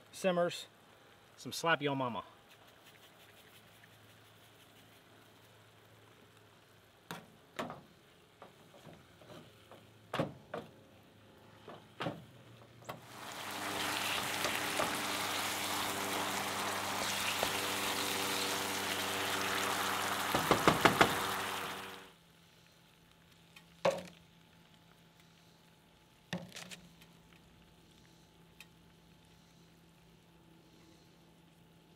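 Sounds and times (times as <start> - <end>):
meat sizzling in a skillet: 13.0 - 22.1.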